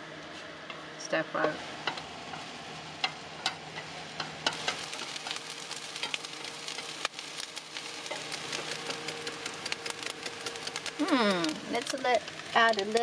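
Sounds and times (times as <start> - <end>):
fried rice sizzling on griddle: 1.4 - 13.0.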